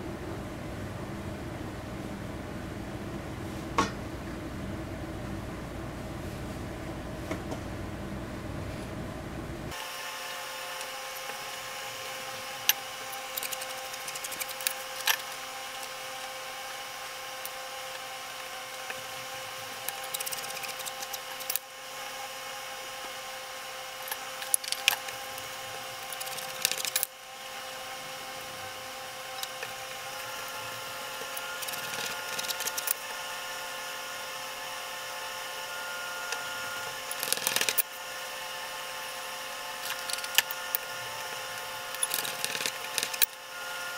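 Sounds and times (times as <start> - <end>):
steady hum: 0.0 - 43.9
bench scraper cutting dough: 10.4 - 23.3, 23.9 - 38.1.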